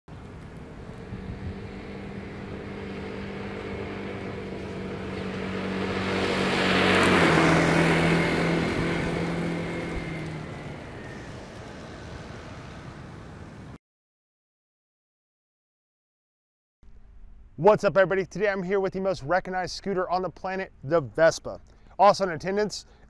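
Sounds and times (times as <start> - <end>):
scooter passing by: 0.1 - 13.8.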